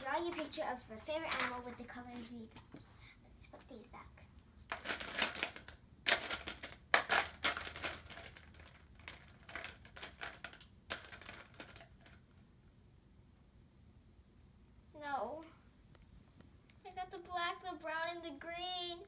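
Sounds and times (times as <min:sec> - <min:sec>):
markers clattering in a cup: 0:04.7 - 0:12.3.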